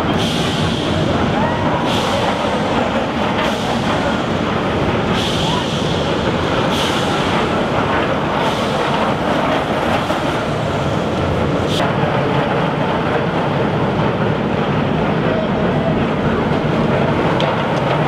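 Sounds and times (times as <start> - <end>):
roller coaster rolling on track: 0.0 - 18.0.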